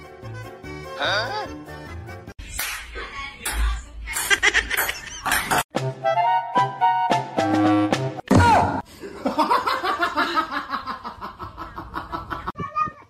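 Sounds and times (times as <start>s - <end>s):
music track: 5.8s - 8.2s
people laughing: 9.0s - 12.6s.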